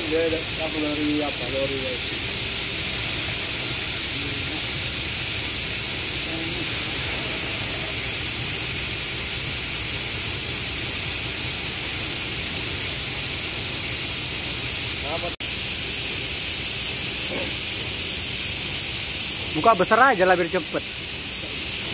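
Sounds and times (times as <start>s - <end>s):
kernels pouring into truck bed: 0.0s - 15.3s.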